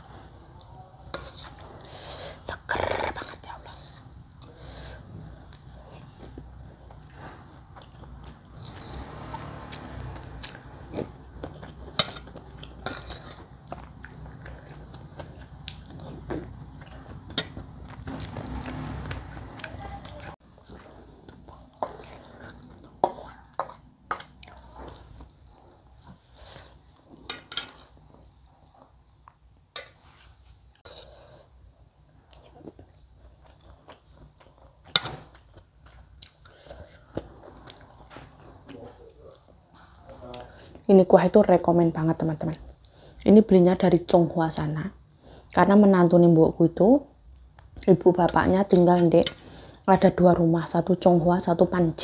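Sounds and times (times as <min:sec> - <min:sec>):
person chewing food: 0:03.0 - 0:29.4, 0:30.7 - 0:40.8.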